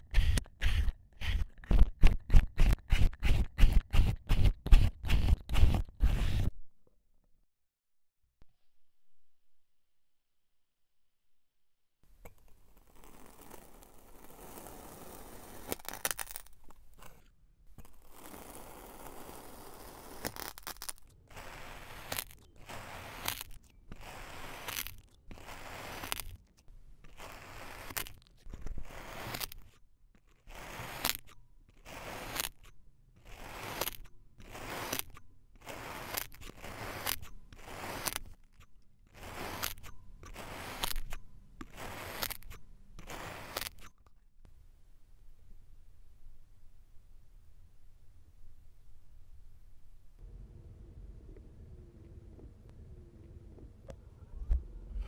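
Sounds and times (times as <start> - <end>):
pick crunching into packed sand: 39.1 - 43.9.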